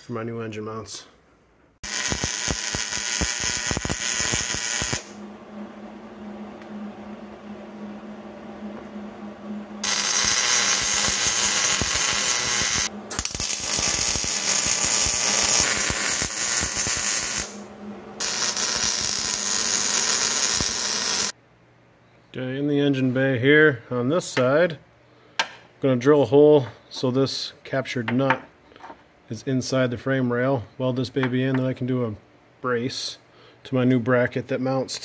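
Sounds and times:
low hum: 0:01.3 - 0:22.3
welding arc crackling: 0:01.8 - 0:05.2, 0:09.8 - 0:21.4.

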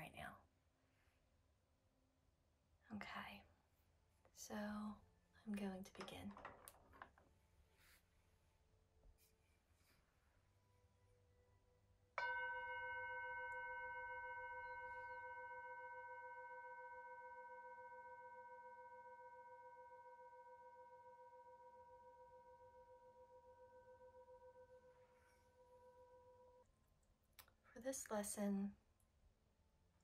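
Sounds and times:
metal singing bowl ringing: 0:12.2 - 0:26.6.

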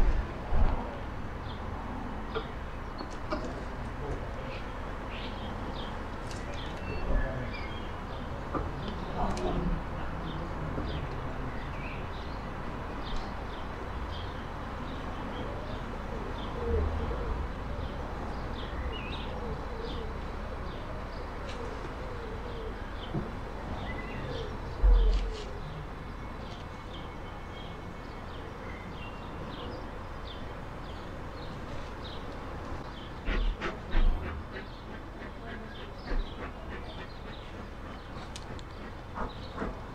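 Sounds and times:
birds chirping: 0:17.2 - 0:39.9.

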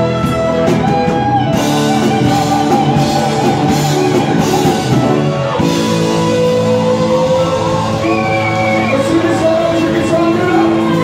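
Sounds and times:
electric guitar lead: 0:00.0 - 0:11.0
live rock band playing: 0:00.0 - 0:11.0.

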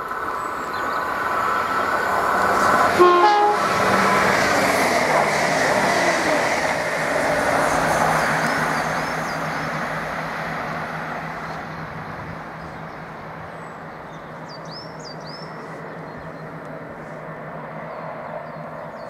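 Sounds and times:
diesel train engine pulling away: 0:00.0 - 0:19.0
train wheel noise: 0:01.0 - 0:14.4.

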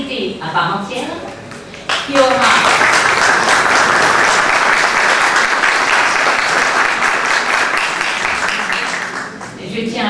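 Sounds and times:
audience applauding: 0:01.9 - 0:09.6.

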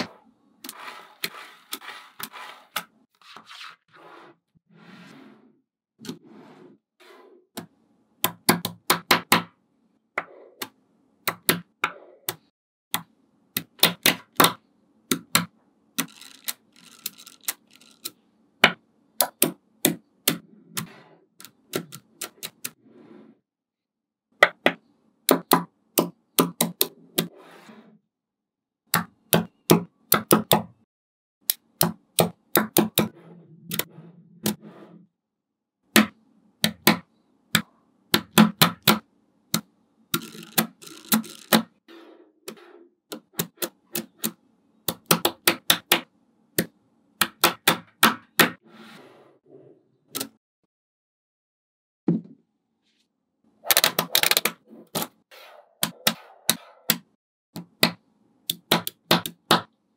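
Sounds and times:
magnet balls clicking: 0:16.0 - 0:18.2, 0:40.1 - 0:41.6.

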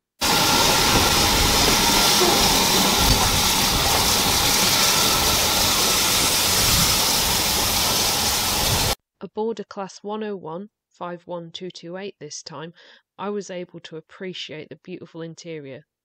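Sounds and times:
low rumble: 0:00.2 - 0:09.0
steam locomotive hissing: 0:00.2 - 0:09.0.

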